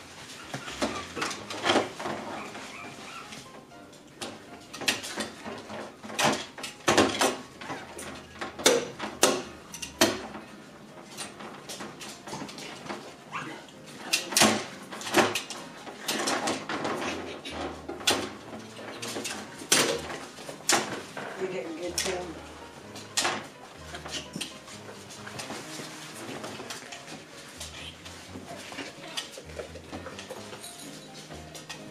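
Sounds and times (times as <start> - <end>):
puppies scuffling on foam mats: 0.0 - 31.9
puppy whimpers: 0.3 - 1.5, 2.3 - 3.4, 13.3 - 13.7.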